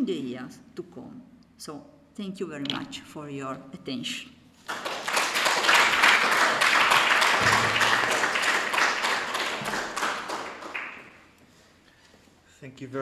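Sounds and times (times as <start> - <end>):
audience applauding: 4.7 - 11.3.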